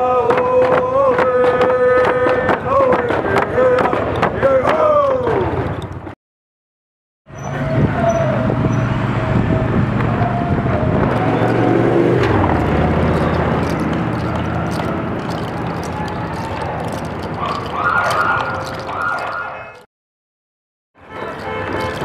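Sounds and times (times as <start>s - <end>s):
vehicle engine running: 10.8s - 18.9s.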